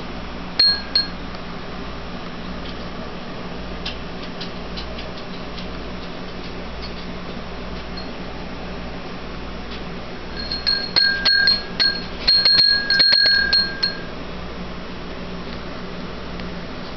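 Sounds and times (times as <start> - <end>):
glass bottle bell clinking: 0.6 - 1.2, 10.3 - 14.1.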